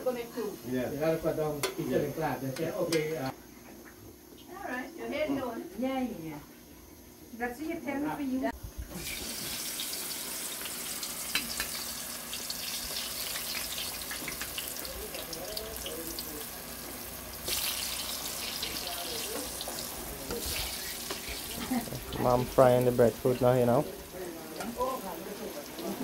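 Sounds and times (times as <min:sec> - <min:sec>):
food sizzling in hot oil: 0:08.9 - 0:26.0.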